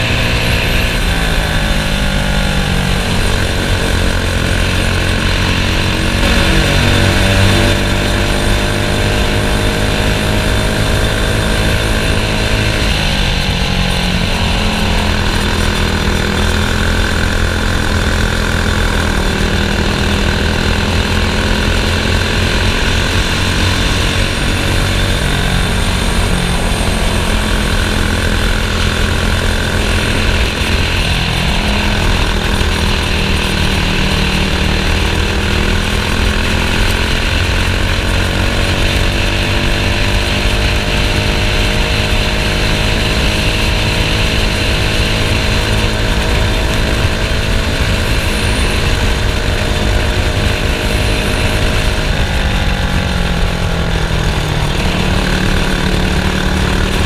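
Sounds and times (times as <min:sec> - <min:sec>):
kart engine running: 0:00.0 - 0:57.0.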